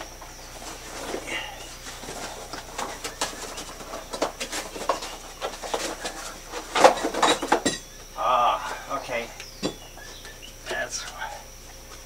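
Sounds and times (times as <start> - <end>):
cardboard box rustling and scraping: 0.3 - 7.7.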